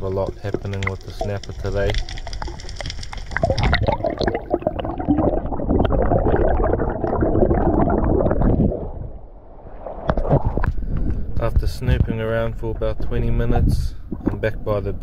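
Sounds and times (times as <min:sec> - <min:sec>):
underwater bubbles gurgling: 0:00.0 - 0:11.4.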